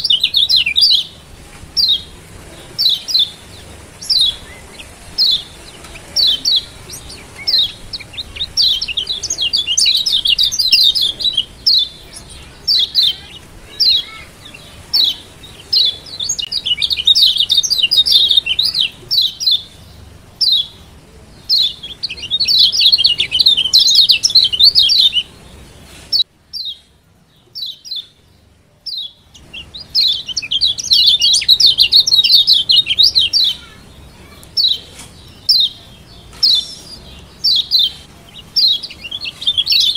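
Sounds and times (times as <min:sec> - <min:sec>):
bird chirping and chattering: 0:00.0 - 0:26.8, 0:28.8 - 0:39.9.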